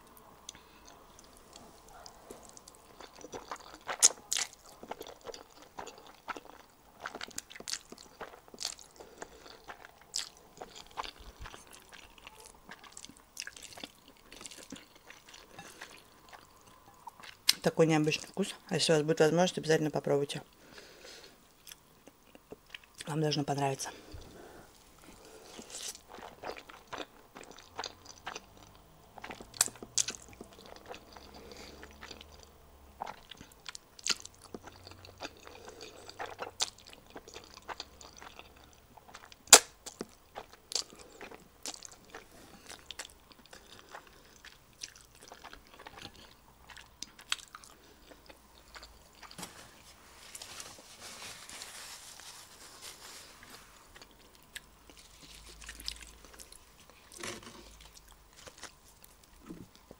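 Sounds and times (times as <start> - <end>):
chewing and slurping noodles: 0.5 - 17.4, 25.1 - 39.3, 39.9 - 49.4
paper napkin rustling: 49.4 - 54.0.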